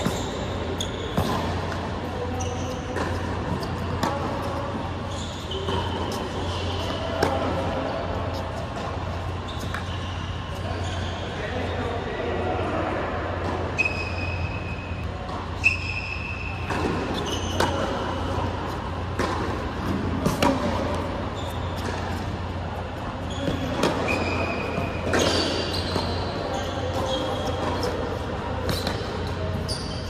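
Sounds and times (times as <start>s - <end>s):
tennis ball bouncing: 0.0s - 4.8s, 5.5s - 10.0s, 16.4s - 29.7s
rackets hitting tennis ball: 0.0s - 11.0s, 13.4s - 29.9s
sneakers squeaking on court: 0.0s - 12.1s, 13.4s - 30.0s
low hum in hall: 0.0s - 30.0s.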